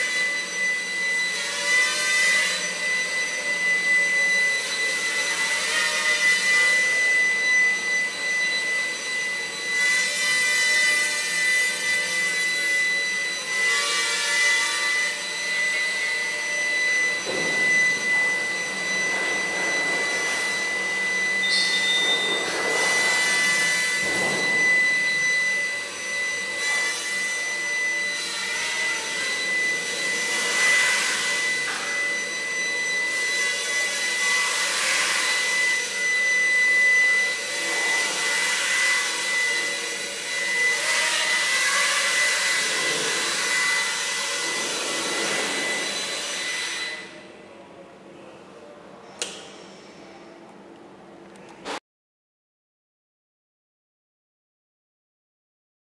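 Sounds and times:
drone rotors whining: 0:14.8 - 0:34.6.

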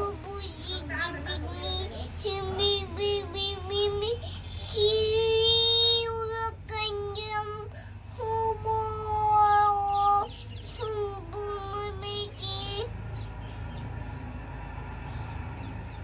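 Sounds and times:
girl chanting in sing-song: 0:00.0 - 0:12.9.

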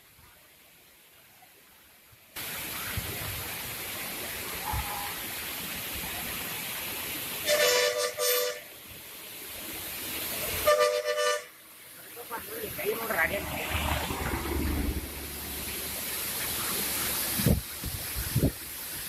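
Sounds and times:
vehicle horn: 0:07.4 - 0:08.7, 0:10.6 - 0:11.6.

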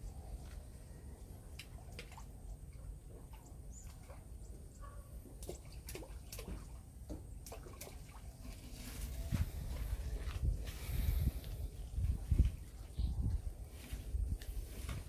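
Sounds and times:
water drips and small splashes: 0:01.4 - 0:09.0
wind rumble on microphone: 0:08.5 - 0:15.0.

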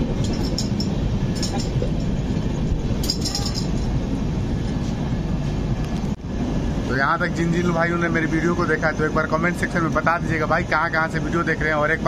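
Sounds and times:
train wheels rumbling on rails: 0:00.0 - 0:12.0
light clinks: 0:00.2 - 0:02.3, 0:02.9 - 0:04.0.

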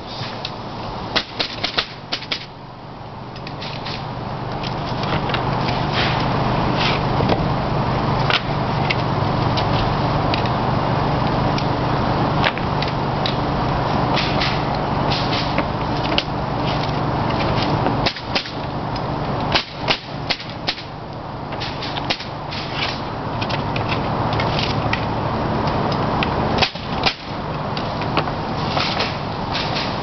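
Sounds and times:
steady low hum: 0:00.0 - 0:30.0
pneumatic nailer firing: 0:01.1 - 0:02.5, 0:14.1 - 0:15.6, 0:18.0 - 0:18.6, 0:19.5 - 0:20.9, 0:21.6 - 0:23.1, 0:26.6 - 0:27.4, 0:28.6 - 0:30.0.

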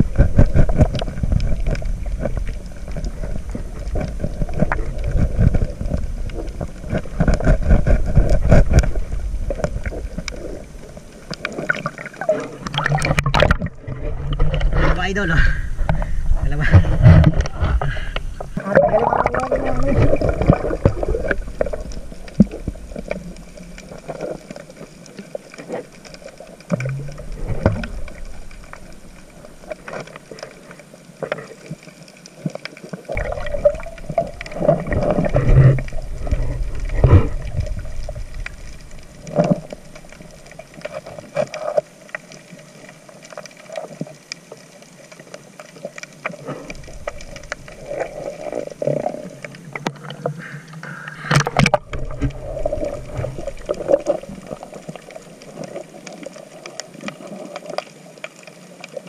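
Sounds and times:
muffled underwater noise: 0:00.0 - 0:59.0
low rumble: 0:12.7 - 0:23.8.

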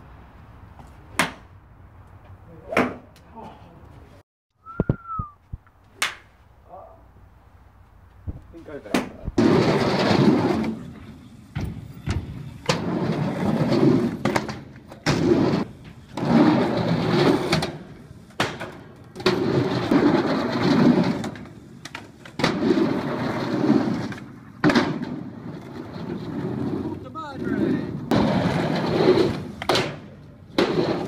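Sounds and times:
skateboard wheels rolling on asphalt: 0:07.6 - 0:31.0
skateboard popping and landing clacks: 0:08.3 - 0:10.9, 0:11.5 - 0:31.0.

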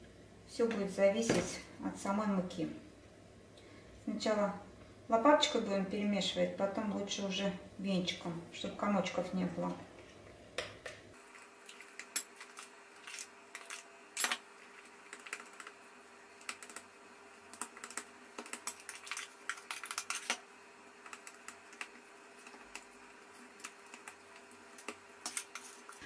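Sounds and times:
spatula stirring batter: 0:14.6 - 0:26.0.

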